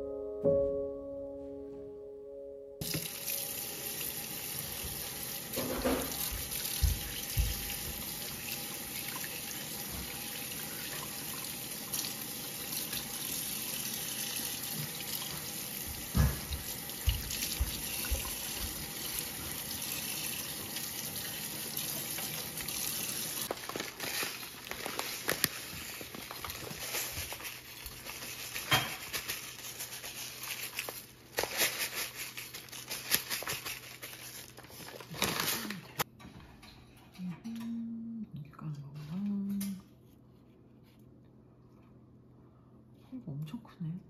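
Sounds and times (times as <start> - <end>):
tap water running into colander: 2.8 - 23.9.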